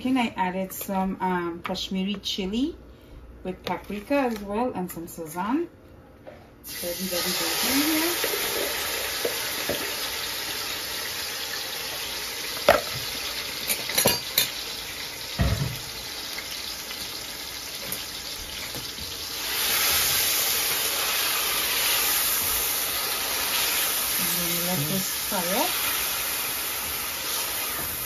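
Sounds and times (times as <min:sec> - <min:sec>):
chicken sizzling in hot oil: 0:06.6 - 0:28.0.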